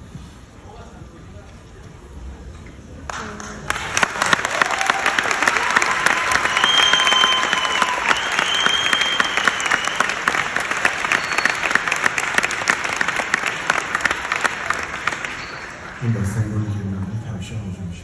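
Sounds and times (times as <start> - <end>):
audience applauding: 3.1 - 16.7.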